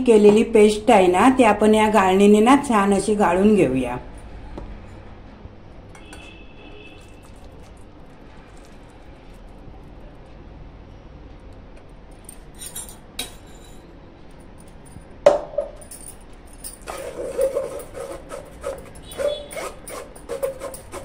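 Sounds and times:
spoon scraping a mesh strainer: 0:16.9 - 0:21.0.

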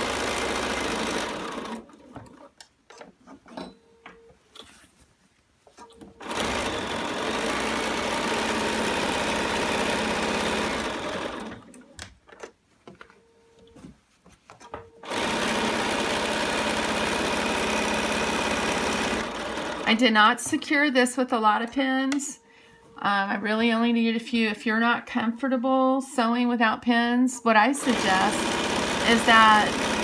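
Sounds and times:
sewing machine stitching: 0:00.0 - 0:02.6, 0:06.2 - 0:11.9, 0:15.0 - 0:20.0, 0:27.8 - 0:30.0.

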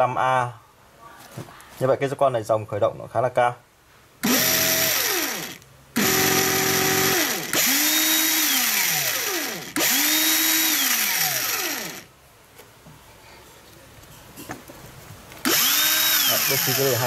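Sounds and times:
cordless drill spinning up and down: 0:04.2 - 0:12.1, 0:15.4 - 0:17.0.

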